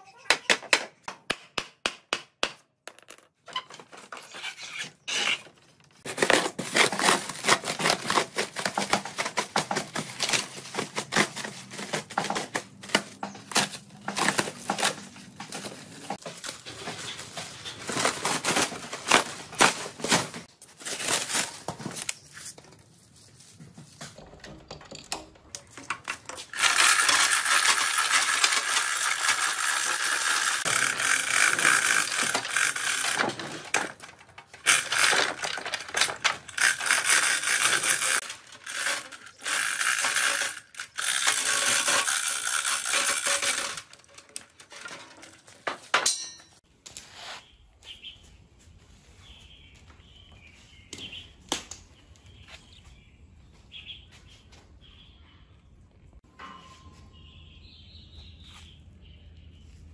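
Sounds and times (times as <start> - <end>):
plastic wrap crackling and tearing: 6.0 - 12.9
chain hoist rattling: 26.0 - 46.3.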